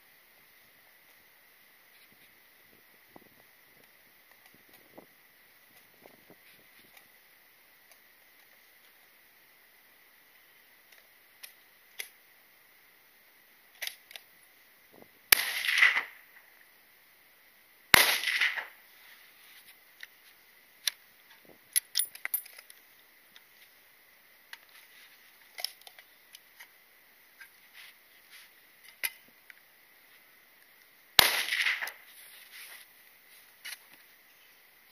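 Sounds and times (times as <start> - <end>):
rifle shots: 15.3 - 16.2, 17.9 - 18.7, 31.2 - 32.0.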